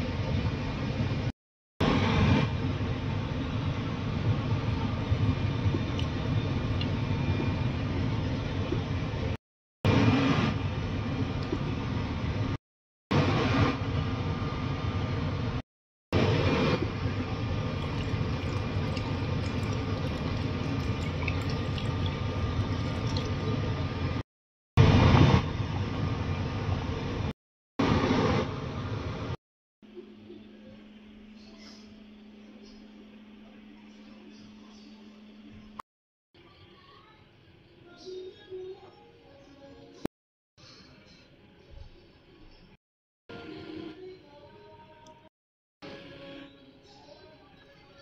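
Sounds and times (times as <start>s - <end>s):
braising liquid bubbling in a pot: 3.2s - 9.4s, 16.9s - 24.2s.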